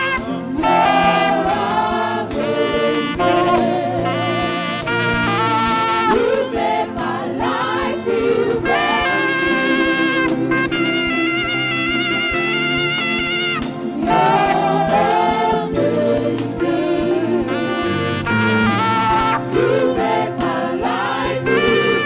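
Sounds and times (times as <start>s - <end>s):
choir singing: 0.0s - 12.9s, 13.5s - 22.0s
steady beat: 0.0s - 17.6s
saxophone melody: 0.0s - 22.0s
trumpets: 0.0s - 22.0s.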